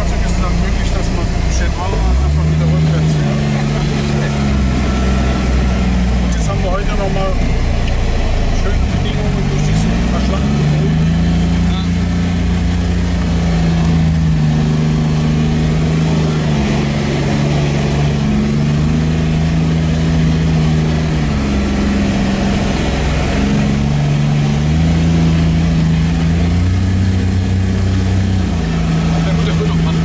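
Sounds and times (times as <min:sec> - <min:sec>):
vehicle engine drone from inside cab: 0:00.0 - 0:30.0.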